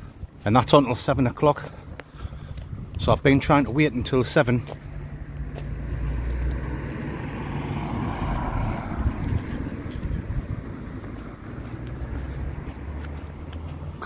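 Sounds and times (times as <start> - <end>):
steady low rumble: 0.0 - 7.2, 7.9 - 14.0
car driving past: 5.0 - 13.9.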